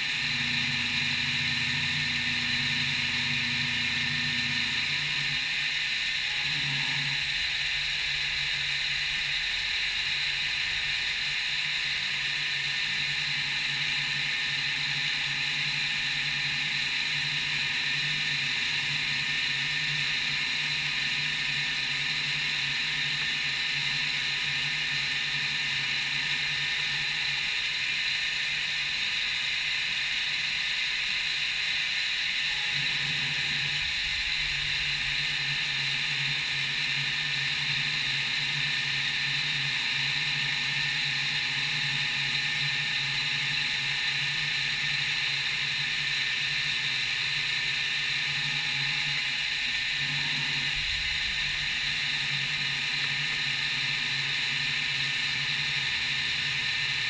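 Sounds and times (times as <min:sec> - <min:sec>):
milling machine spindle whir: 0:00.0 - 0:57.0.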